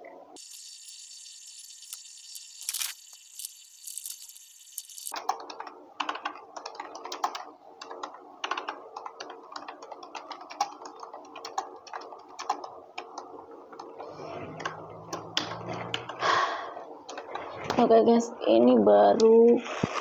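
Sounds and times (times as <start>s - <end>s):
laptop keyboard typing: 0.4s - 13.9s.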